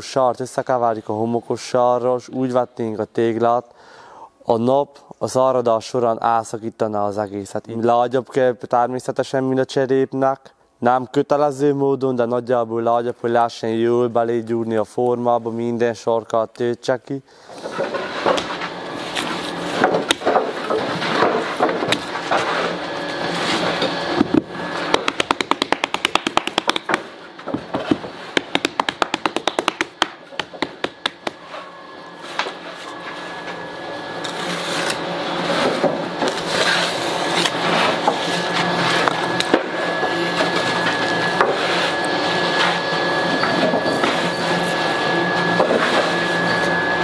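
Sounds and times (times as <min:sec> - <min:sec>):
steady hum: 0:17.8 - 0:47.0
thin high whine: 0:29.5 - 0:47.0.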